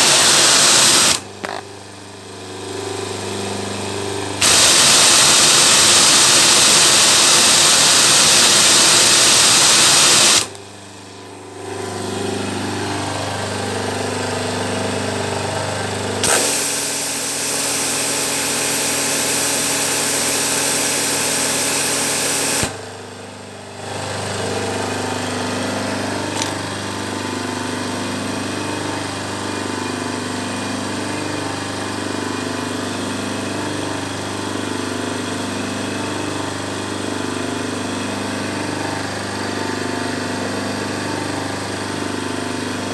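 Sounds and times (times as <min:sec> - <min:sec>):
pressure washer jet hissing: 0:00.0 - 0:01.3, 0:04.4 - 0:10.6, 0:16.2 - 0:22.8
pump motor humming: 0:00.0 - 0:01.7, 0:04.4 - 0:15.2, 0:15.9 - 0:27.4.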